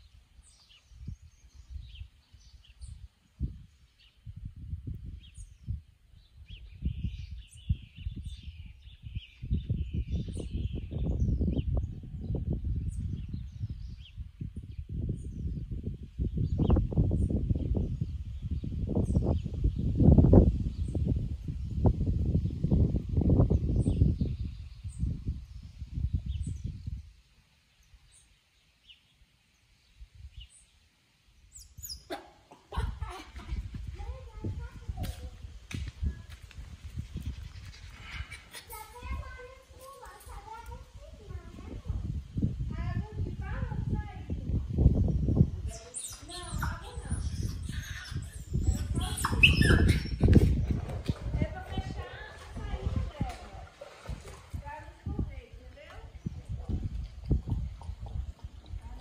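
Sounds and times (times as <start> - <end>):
wind rumble on microphone: 0.0 - 29.0, 29.8 - 30.7, 32.7 - 59.0
birds chirping: 31.4 - 35.5, 45.3 - 53.4
bird chirping: 31.5 - 32.2.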